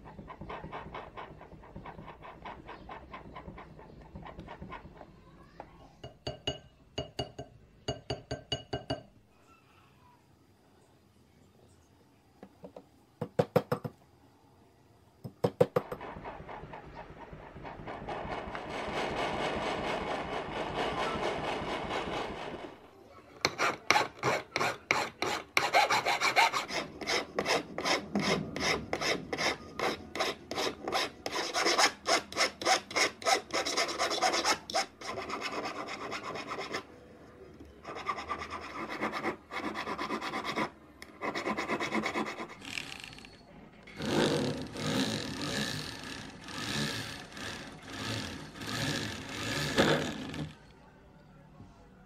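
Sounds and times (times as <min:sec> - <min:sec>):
file rasping on metal: 0:00.0 - 0:05.1, 0:15.8 - 0:22.7, 0:23.4 - 0:36.9, 0:37.8 - 0:42.6, 0:44.0 - 0:50.6
rotary drill running: 0:15.9 - 0:22.8, 0:44.0 - 0:50.6.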